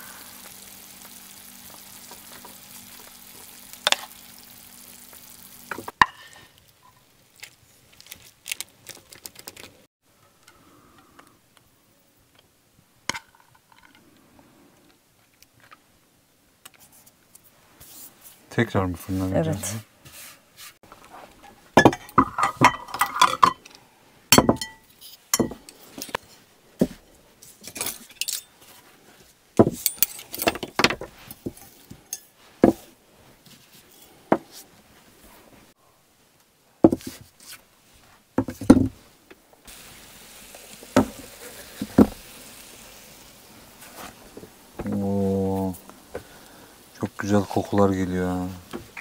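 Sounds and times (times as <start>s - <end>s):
soft steady hiss: 0.0s - 49.0s
cookware and utensils clinking: 5.7s - 7.0s, 21.4s - 23.7s, 24.3s - 26.4s, 27.6s - 28.6s, 29.6s - 30.8s, 31.4s - 32.8s.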